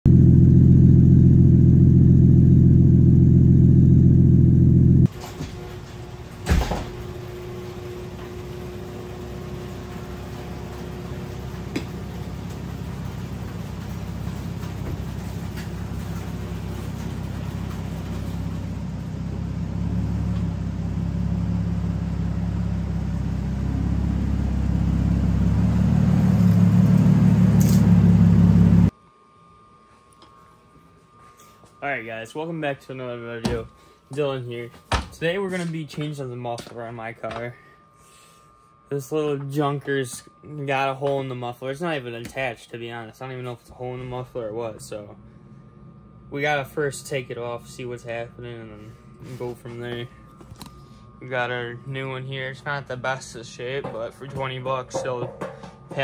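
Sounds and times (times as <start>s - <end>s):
loud exhaust rumble: 0.0s - 28.9s.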